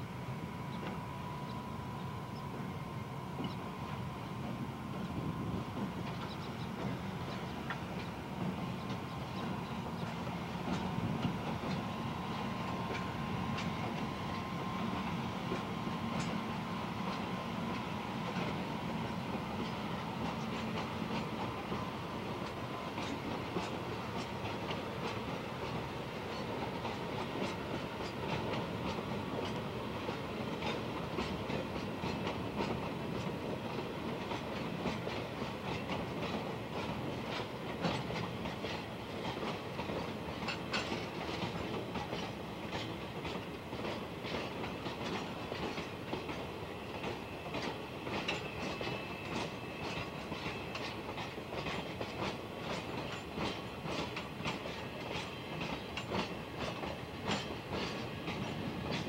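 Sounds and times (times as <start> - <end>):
train rolling hum: 0.0 - 59.0
wheels clicking over rail joints: 6.0 - 14.4, 22.4 - 59.0.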